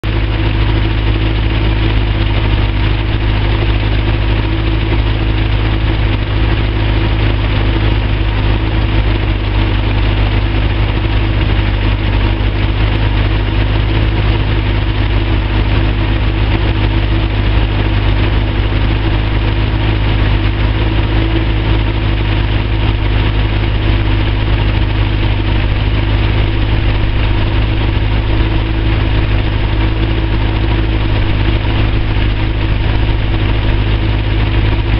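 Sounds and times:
hovercraft engine idling: 0.0s - 34.9s.

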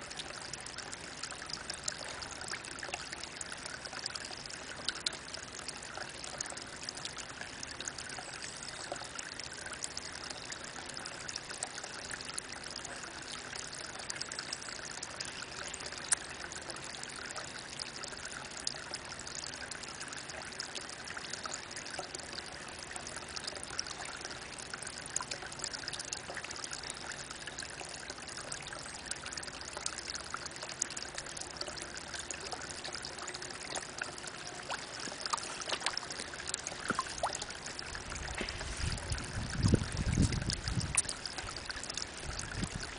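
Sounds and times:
water drips: 0.0s - 42.9s
water trickling into a pond: 0.0s - 42.9s.

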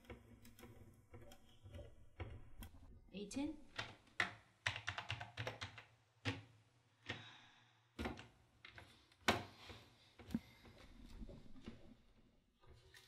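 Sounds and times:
fast typing on keyboard: 3.7s - 6.4s.

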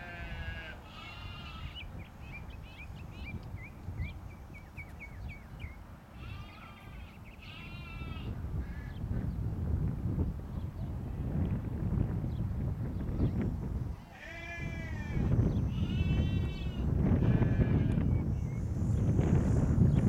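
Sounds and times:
sheep bleating: 0.0s - 1.8s, 6.2s - 8.3s, 14.1s - 18.0s
wind rumble on microphone: 0.0s - 20.0s.

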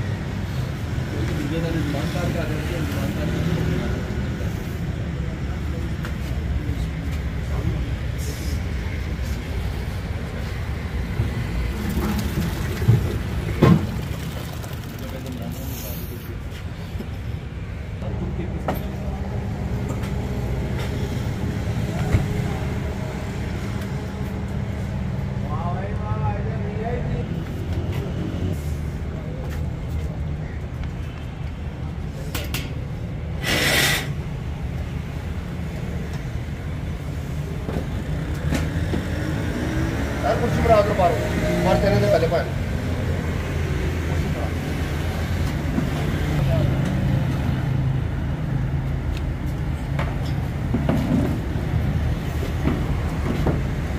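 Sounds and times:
street traffic rumble: 0.0s - 53.9s
brief loud hiss: 33.4s - 34.2s.

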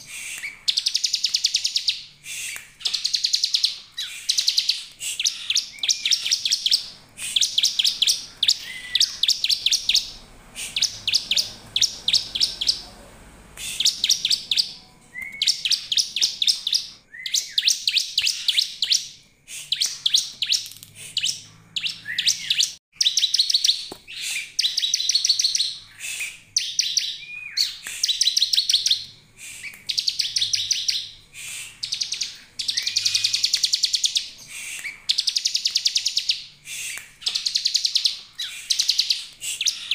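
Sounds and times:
bird singing fast high notes: 4.1s - 16.9s.

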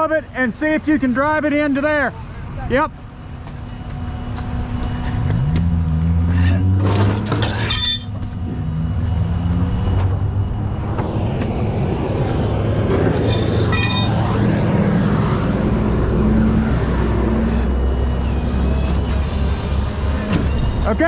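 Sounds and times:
rushing noise: 8.4s - 21.0s
high squeak: 13.2s - 14.2s.

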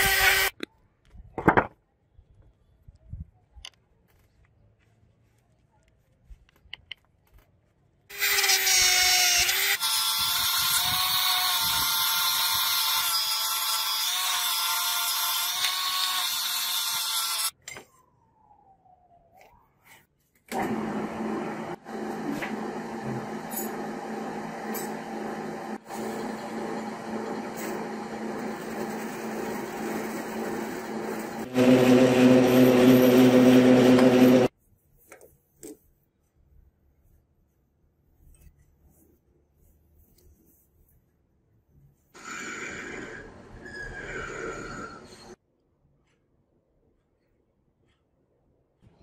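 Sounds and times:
drill bit boring into brass: 8.1s - 17.5s
metal lathe running: 21.4s - 34.5s
rotary tool whine: 21.7s - 34.5s.

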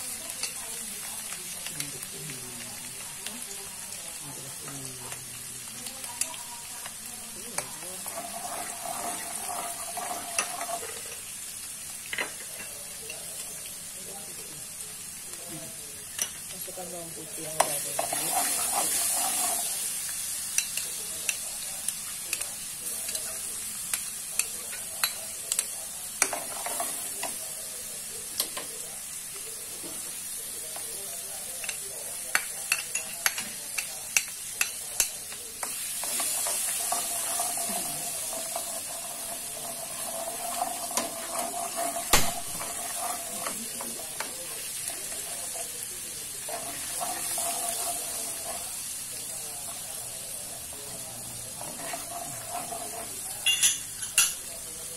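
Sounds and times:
fish sizzling in hot oil: 0.0s - 54.9s
spatula scraping a pan: 7.6s - 11.1s, 17.6s - 20.9s, 26.2s - 27.4s, 32.9s - 54.0s.

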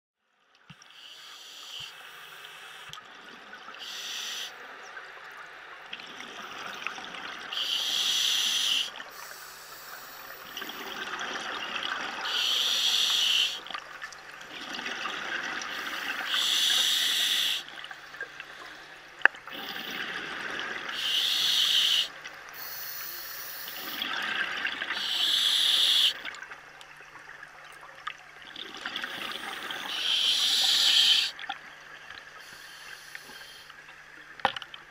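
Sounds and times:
faint steady hum: 0.3s - 34.9s
scuba regulator inhalation hiss: 1.0s - 2.9s, 3.8s - 4.6s, 7.5s - 10.8s, 12.2s - 13.7s, 15.7s - 17.7s, 20.9s - 24.2s, 24.9s - 26.3s, 29.0s - 31.4s, 32.4s - 33.7s
exhaled bubbles gushing: 19.4s - 21.4s, 23.7s - 26.5s, 28.4s - 31.6s.

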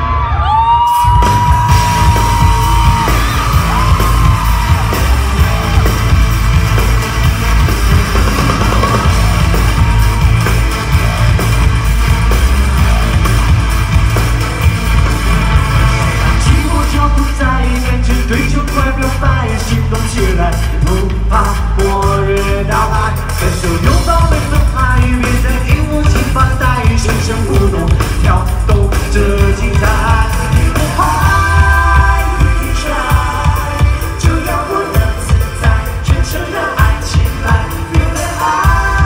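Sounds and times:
crowd yelling: 0.0s - 16.7s
dance-pop music over sound system: 0.0s - 39.0s.

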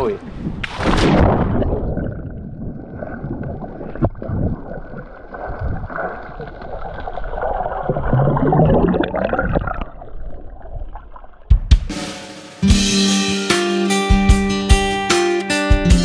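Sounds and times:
underwater water sloshing: 0.3s - 11.5s
rush of bubbles: 0.7s - 11.5s.

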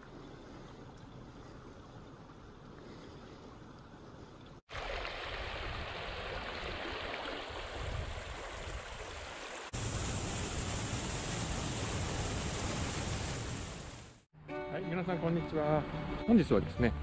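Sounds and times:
shallow river rushing: 4.7s - 14.1s.

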